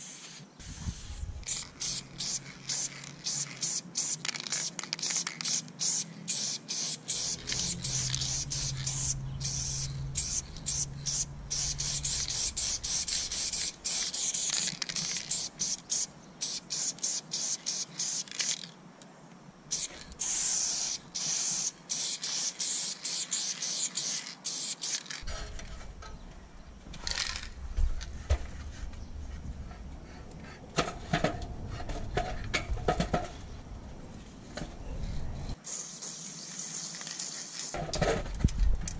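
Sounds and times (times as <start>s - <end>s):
spray paint can hissing: 0.0s - 18.7s, 19.7s - 25.3s, 35.6s - 37.8s.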